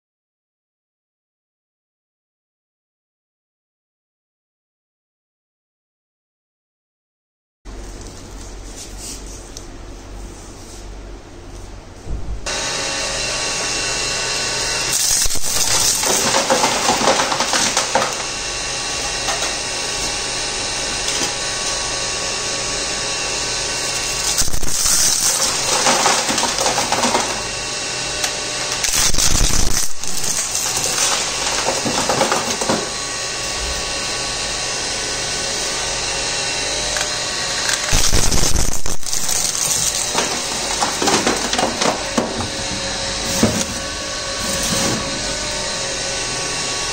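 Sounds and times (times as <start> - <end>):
shredder motor hum and whine: 12.4 - 46.9
shredder tearing electronic waste: 12.5 - 46.9.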